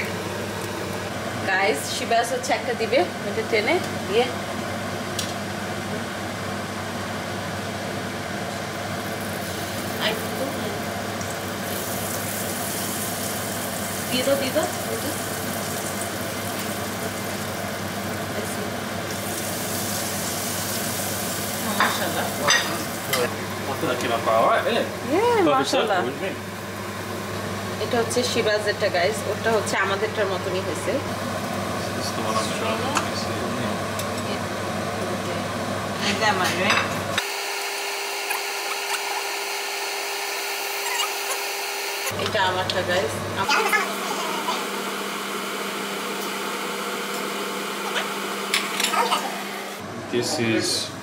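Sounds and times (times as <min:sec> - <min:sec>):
oil sizzling while deep-frying: 0:00.0 - 0:33.2, 0:37.0 - 0:42.8, 0:43.4 - 0:49.8
batter sizzling in hot oil: 0:08.6 - 0:25.0.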